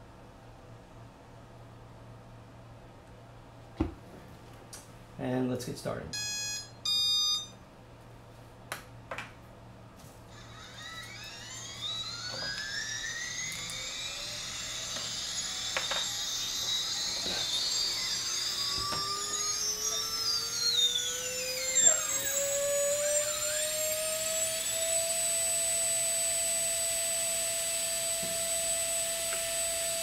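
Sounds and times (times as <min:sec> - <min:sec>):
electric motor whine rising: 0:10.3 - 0:30.0.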